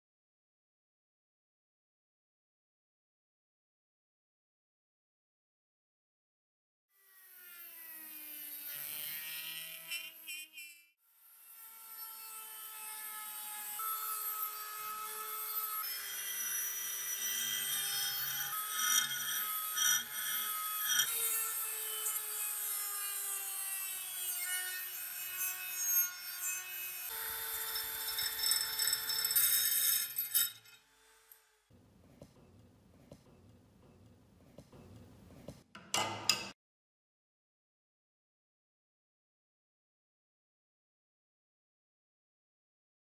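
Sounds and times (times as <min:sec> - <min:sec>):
rotary tool motor whine: 0:27.1 - 0:31.7.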